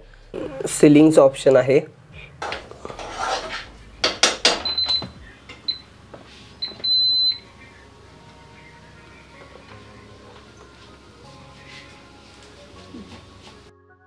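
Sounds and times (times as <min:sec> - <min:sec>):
short high beeps: 0:04.6 - 0:05.8.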